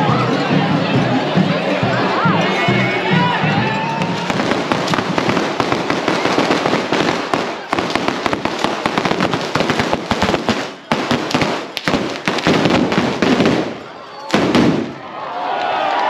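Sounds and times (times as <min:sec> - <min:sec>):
fireworks hissing and crackling: 0:04.2 - 0:14.9.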